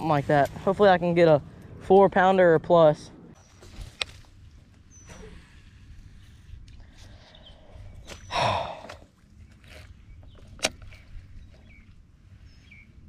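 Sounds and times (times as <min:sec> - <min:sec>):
faint bird chirps: 0:04.8 - 0:06.4, 0:11.2 - 0:13.0.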